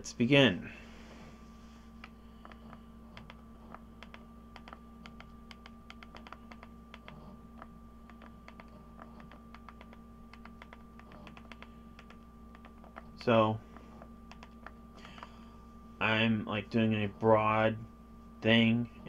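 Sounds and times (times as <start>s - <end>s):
faint electrical hum: 0.0s - 19.0s.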